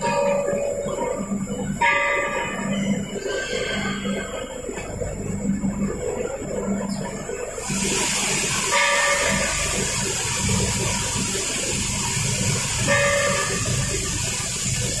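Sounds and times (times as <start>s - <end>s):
machine hissing and rumbling: 0.0s - 15.0s.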